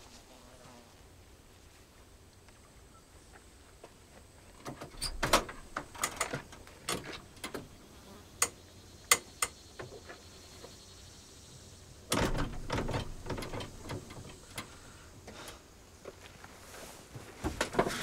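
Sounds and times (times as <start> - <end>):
door handle and latch clicking: 12.1 - 14.7.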